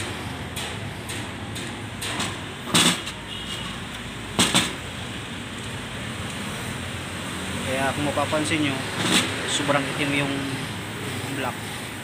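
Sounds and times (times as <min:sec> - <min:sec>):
sharp knocks of metal parts: 0:00.0 - 0:03.3, 0:04.3 - 0:04.9, 0:08.9 - 0:09.6.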